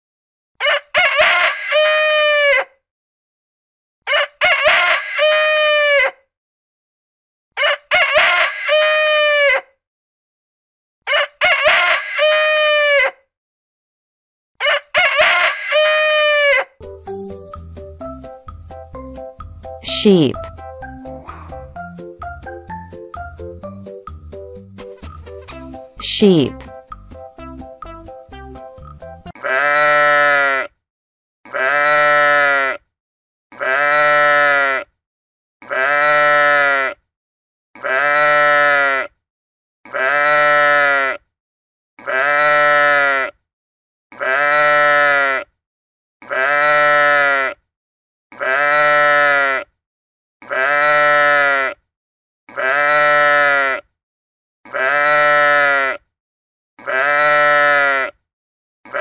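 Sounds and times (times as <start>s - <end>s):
sheep bleating: 29.4s - 30.7s, 31.5s - 32.8s, 33.5s - 34.9s, 35.6s - 37.0s, 37.8s - 39.1s, 39.9s - 41.2s, 42.0s - 43.4s, 44.1s - 45.5s, 46.2s - 47.6s, 48.3s - 49.7s, 50.4s - 51.8s, 52.5s - 53.8s, 54.7s - 56.0s, 56.8s - 58.2s.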